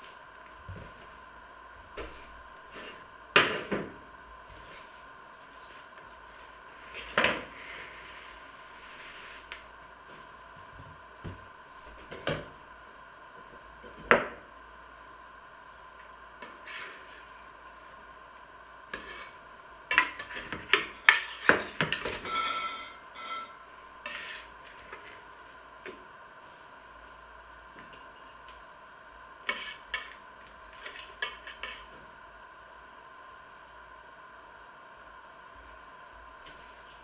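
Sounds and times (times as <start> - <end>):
cutlery clinking on metal tray: 19.9 - 23.6.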